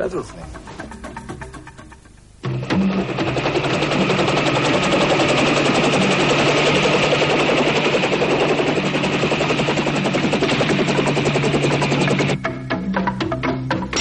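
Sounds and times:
rapid automatic gunfire: 0:02.9 - 0:12.4.

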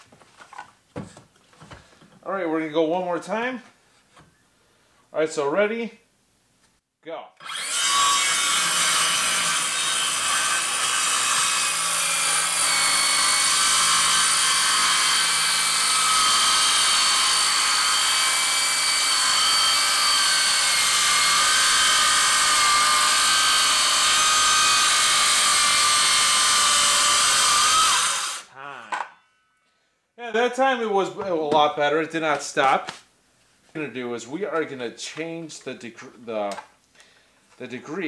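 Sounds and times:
circular saw cutting wood: 0:07.4 - 0:28.5.

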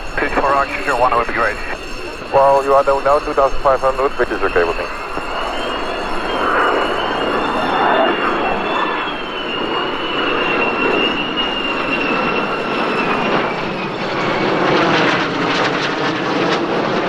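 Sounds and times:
jet engines flying past: 0:00.0 - 0:17.0.

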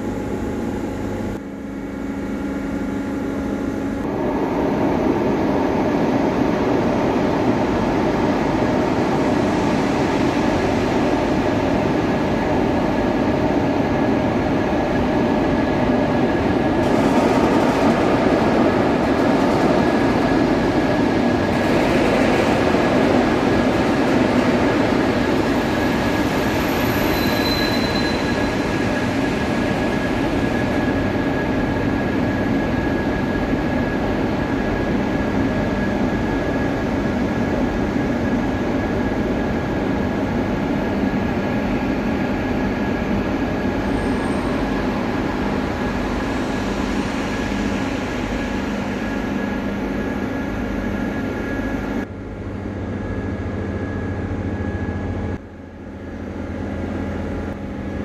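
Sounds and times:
train rumbling: 0:04.0 - 0:51.8
faint high whine: 0:25.4 - 0:29.7.

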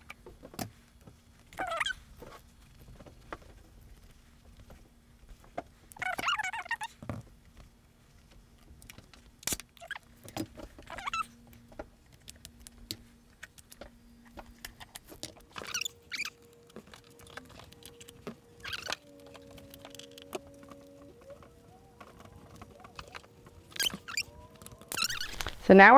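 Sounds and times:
faint steady hum: 0:00.0 - 0:25.9.

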